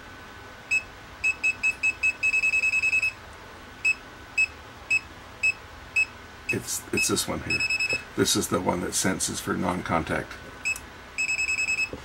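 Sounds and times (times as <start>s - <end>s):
voltage detector beeping: 0.7s - 3.2s, 3.8s - 8.0s, 10.6s - 12.0s.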